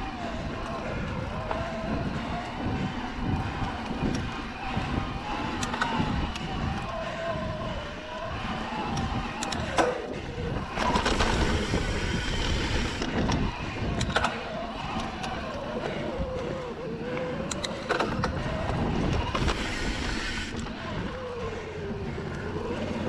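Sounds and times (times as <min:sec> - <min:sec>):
bike clicks and rattles: 0:00.0 - 0:23.0
tyres rolling on dirt: 0:00.0 - 0:23.0
wind on microphone: 0:00.0 - 0:23.0.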